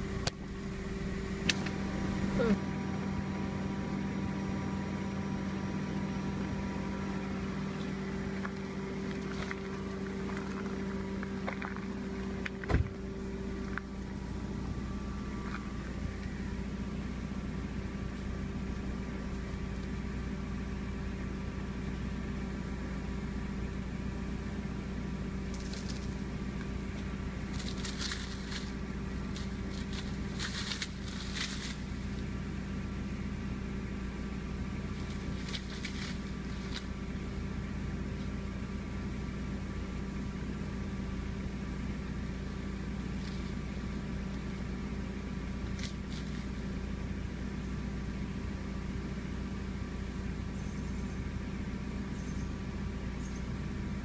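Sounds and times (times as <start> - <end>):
steady mechanical hum: 0.0 - 54.0
brief crackling noises: 29.3 - 31.8, 35.0 - 36.9.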